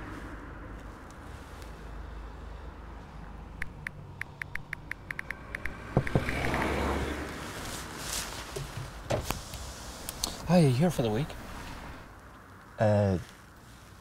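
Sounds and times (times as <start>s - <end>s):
phone keyboard clicking: 3.6s - 6.6s
sharp knocks: 5.2s - 6.7s.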